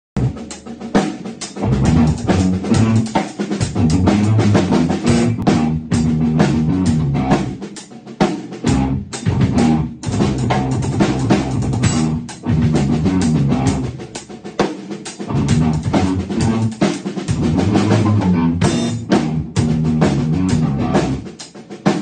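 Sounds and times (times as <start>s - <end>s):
drum kit beat: 0.2s - 22.0s
guitar low repeated notes: 3.8s - 7.5s, 8.7s - 10.6s, 11.3s - 13.9s, 15.3s - 16.7s, 17.4s - 21.2s.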